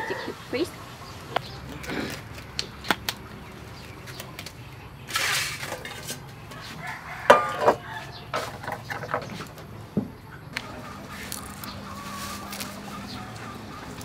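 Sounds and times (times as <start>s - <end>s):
hens clucking: 0.0s - 14.0s
metal tray clattering: 5.1s - 6.3s, 7.3s - 9.4s.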